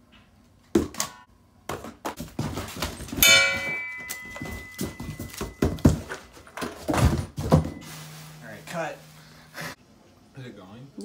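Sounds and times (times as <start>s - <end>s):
knocks and thuds of handling: 1.7s - 8.0s
ringing metal strike: 3.2s - 6.1s.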